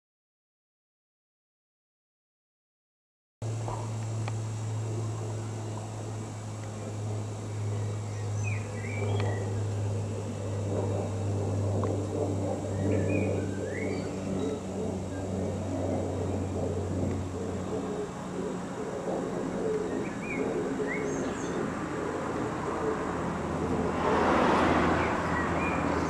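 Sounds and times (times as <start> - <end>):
steady low drone: 3.4 - 26.0
bird chirps: 7.5 - 9.9, 12.7 - 15.3, 19.8 - 21.7.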